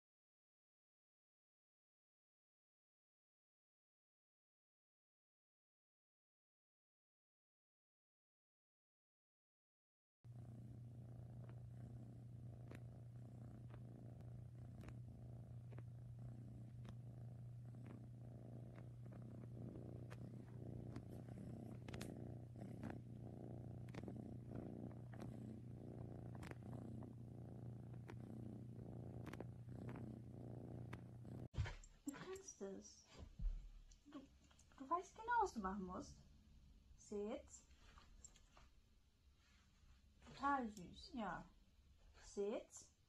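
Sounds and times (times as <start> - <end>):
cat purring: 10.3 - 43.0
faint clicks: 12.5 - 12.9, 13.6 - 15.0, 18.6 - 22.2, 26.3 - 26.7, 37.9 - 38.7.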